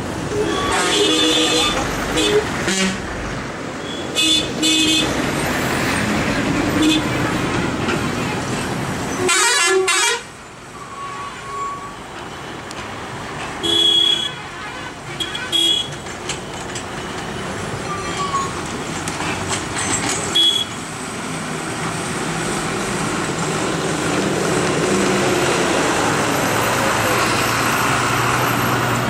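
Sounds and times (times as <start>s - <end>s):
heavy truck engines: 0.0s - 29.0s
vehicle horn toots: 0.4s - 3.0s, 9.2s - 10.3s, 13.6s - 15.9s, 20.4s - 20.7s.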